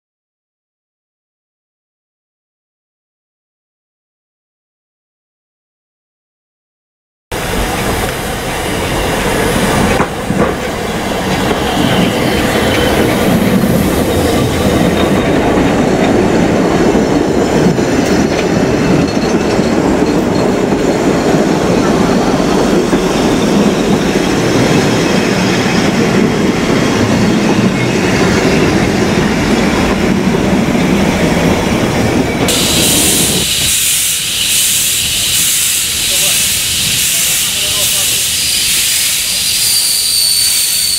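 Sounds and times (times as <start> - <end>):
loud steam hiss: 7.4 - 15.4, 32.4 - 40.9
train wheels clattering over rail joints: 7.5 - 33.7.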